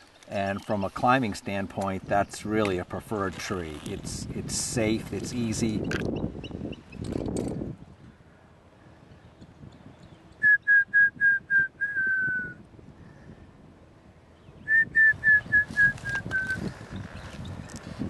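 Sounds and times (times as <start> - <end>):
eagle whistled calls: 14.6 - 16.8.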